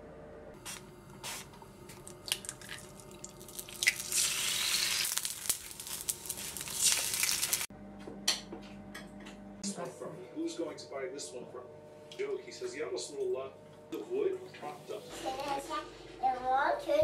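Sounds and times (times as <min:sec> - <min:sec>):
eggs sizzling in frying pan: 0:02.0 - 0:07.7.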